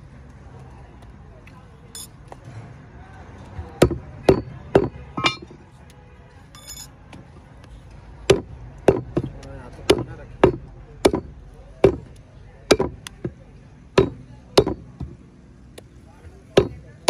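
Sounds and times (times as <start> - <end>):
cleaver chopping meat on wood: 3.8 - 5.0, 8.2 - 13.4, 14.0 - 15.2, 16.5 - 16.9
light metallic clink: 6.5 - 7.0.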